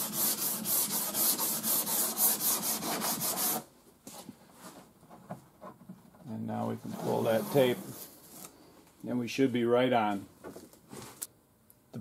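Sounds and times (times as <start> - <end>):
sandpaper rubbing on car panel: 0.0 - 3.6.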